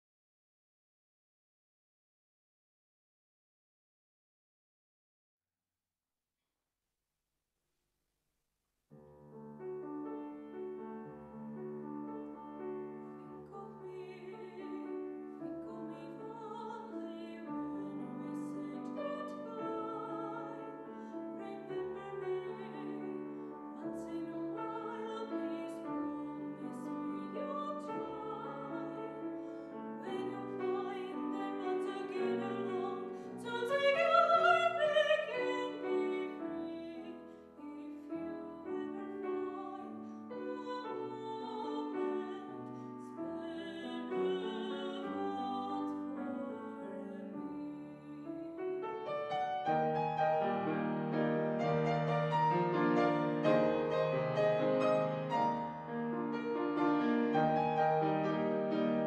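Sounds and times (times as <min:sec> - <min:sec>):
grand piano accompaniment: 0:09.0 - 0:59.0
woman singing operatically: 0:13.2 - 0:15.0, 0:15.6 - 0:29.2, 0:30.0 - 0:42.7, 0:43.3 - 0:48.4.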